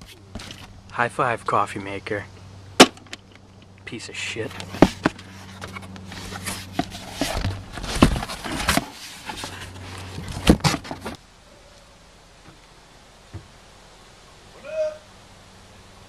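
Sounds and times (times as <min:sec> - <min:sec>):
knocks and scrapes packing box: 0:04.8 - 0:11.2.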